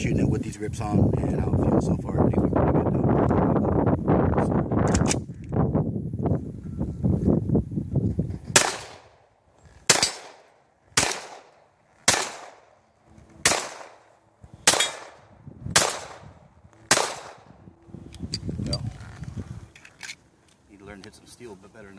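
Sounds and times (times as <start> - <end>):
pistol shots with echo: 8.6 - 9.1, 9.9 - 12.8, 13.4 - 16.3, 16.9 - 17.5.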